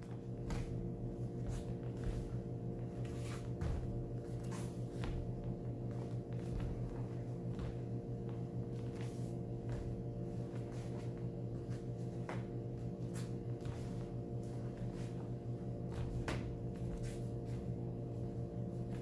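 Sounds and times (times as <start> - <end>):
room hum: 0.0 - 19.0
footfalls on foam mats: 0.3 - 2.4, 3.0 - 7.9, 15.8 - 17.2.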